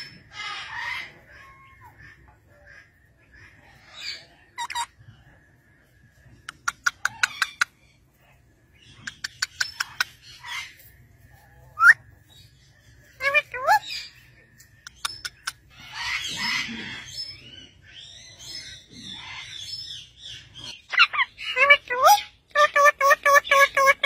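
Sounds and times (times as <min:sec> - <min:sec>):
parakeets chattering: 0:06.5 - 0:07.8, 0:08.8 - 0:10.7, 0:14.9 - 0:24.0.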